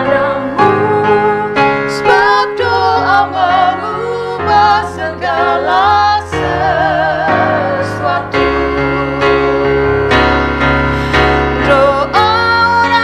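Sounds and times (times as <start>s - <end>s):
woman singing with vibrato: 0.0s - 9.7s, 11.5s - 13.0s
electronic keyboard chords: 0.0s - 13.0s.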